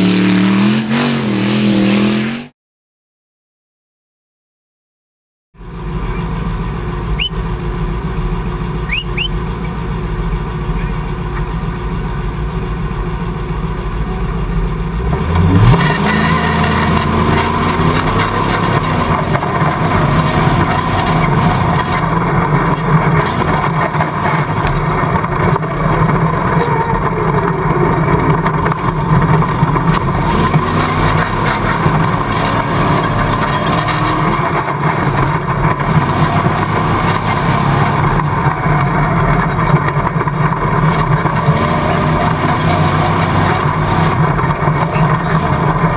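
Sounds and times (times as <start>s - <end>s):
engine revving hard: 0.0s - 2.5s, 15.0s - 38.6s, 40.8s - 45.9s.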